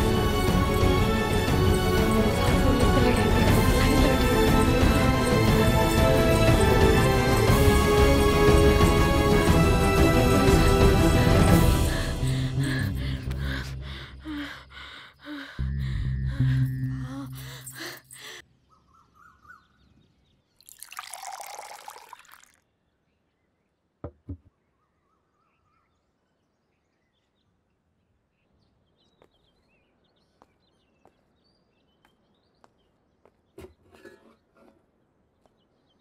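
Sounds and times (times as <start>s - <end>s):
film music: 0.0s - 15.0s
faint bird chirps: 18.5s - 20.6s, 24.4s - 33.0s.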